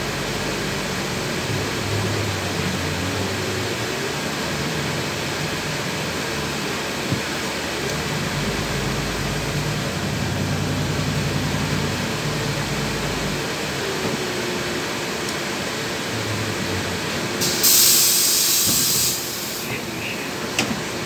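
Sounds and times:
bus engine drone: 0:00.0 - 0:21.0
cabin and road noise: 0:00.0 - 0:21.0
compressed air hiss: 0:17.4 - 0:19.8.

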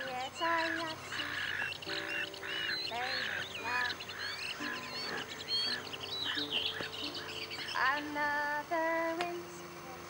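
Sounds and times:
ducks and geese honking: 0:00.0 - 0:08.5
bird chirps and whistles: 0:00.6 - 0:07.8.

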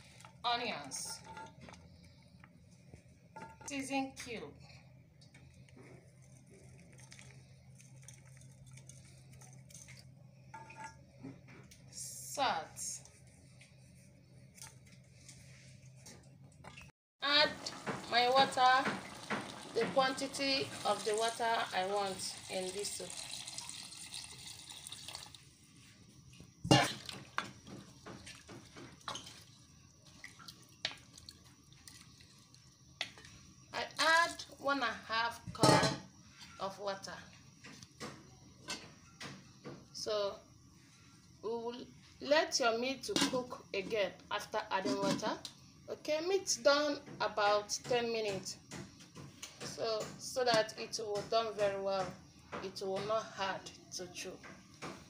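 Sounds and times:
steady low hum: 0:00.0 - 0:16.6
water pouring into pot: 0:18.8 - 0:25.5.

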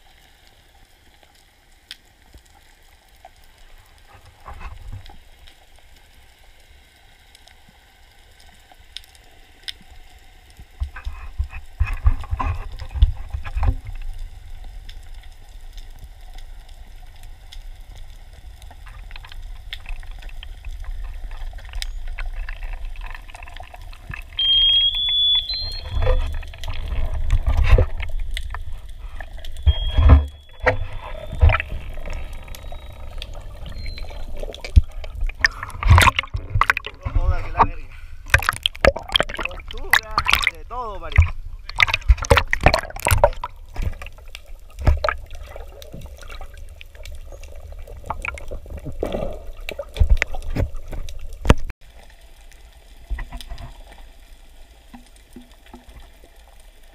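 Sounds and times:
underwater rumble of water: 0:00.0 - 0:56.9
short high-pitched tones: 0:24.4 - 0:26.4, 0:29.5 - 0:31.7.

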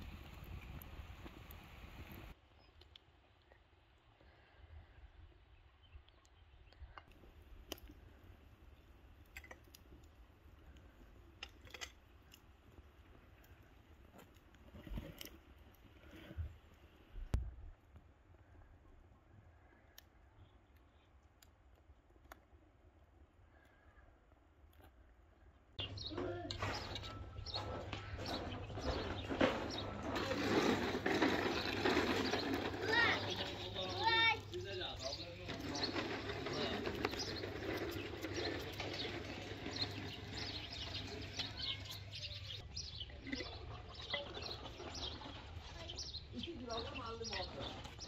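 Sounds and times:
birds singing and chirping: 0:25.8 - 0:48.0.

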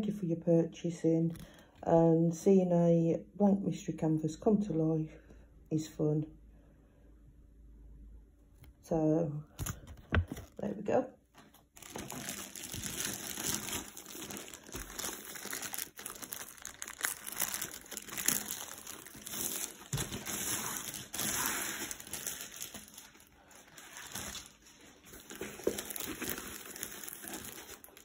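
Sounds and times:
plastic wrapping crinkling: 0:11.4 - 0:28.0.

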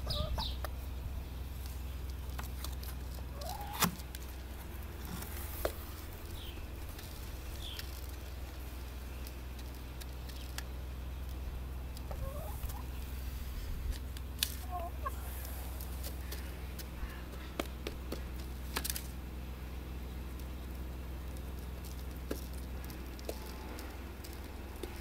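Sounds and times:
hens clucking: 0:00.0 - 0:00.8, 0:03.1 - 0:06.8, 0:11.6 - 0:13.7, 0:14.6 - 0:18.4
hens' beaks tapping: 0:01.6 - 0:13.1, 0:13.9 - 0:19.0, 0:20.2 - 0:25.0.

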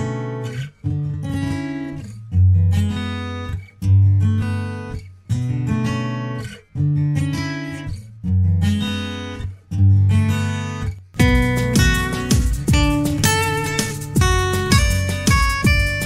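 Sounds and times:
acoustic guitar strumming chords: 0:00.0 - 0:16.0.

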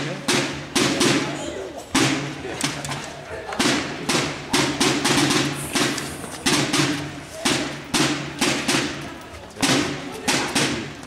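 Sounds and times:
drum beaten with sticks: 0:00.0 - 0:11.0.

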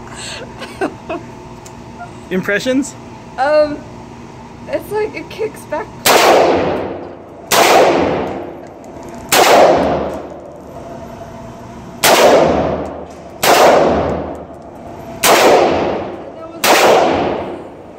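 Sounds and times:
gunshots echoing indoors: 0:06.0 - 0:08.5, 0:09.3 - 0:10.4, 0:12.0 - 0:14.5, 0:15.2 - 0:17.8.

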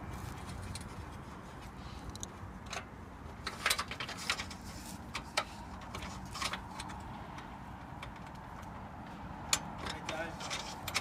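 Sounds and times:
metal clamp clicking and scraping: 0:02.0 - 0:08.7, 0:09.5 - 0:11.0.

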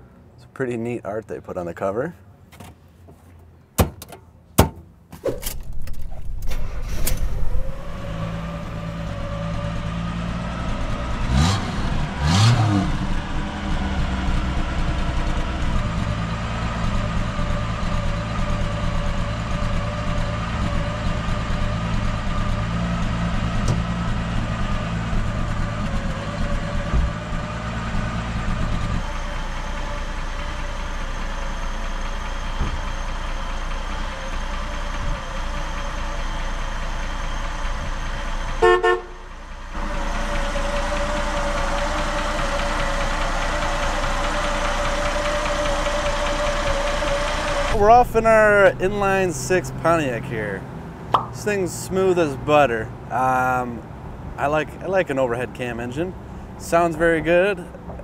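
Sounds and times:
glove box door clicking shut: 0:03.8 - 0:07.3
car engine starting and idling: 0:05.2 - 0:58.0
engine revving: 0:05.4 - 0:53.6.

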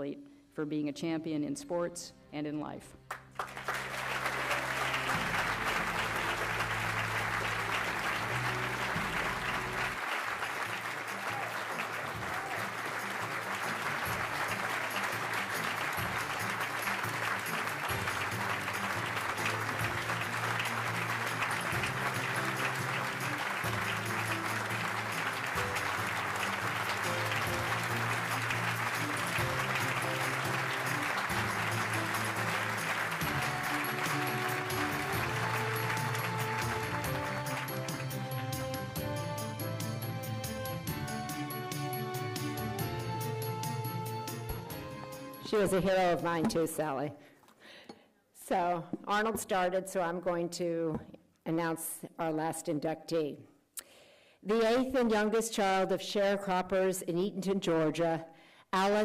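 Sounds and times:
audience applauding: 0:03.1 - 0:39.0
instrumental music: 0:03.2 - 0:45.7.

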